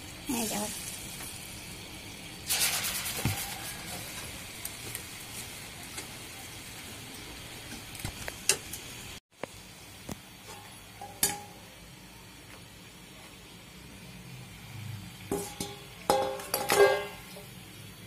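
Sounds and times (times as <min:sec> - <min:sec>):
batter sizzling in hot oil: 0:00.0 - 0:18.0
metal utensils clinking on wok: 0:10.5 - 0:11.6, 0:15.3 - 0:17.5.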